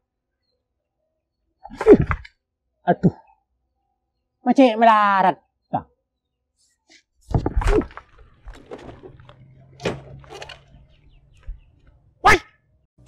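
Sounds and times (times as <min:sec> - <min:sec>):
knocks and thuds: 0:07.3 - 0:10.3.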